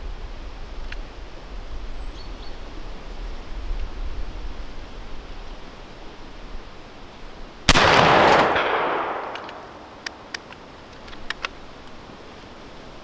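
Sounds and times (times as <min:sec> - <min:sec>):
rifle shot with echo: 0:07.7 - 0:10.3
rifle handling clicks: 0:07.7 - 0:12.0.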